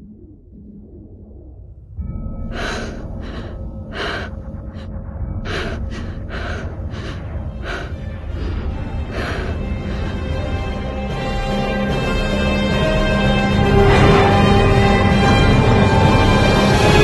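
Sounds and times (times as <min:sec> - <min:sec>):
low rumbling drone: 0:00.0 - 0:17.0
person breathing hard: 0:02.5 - 0:11.1.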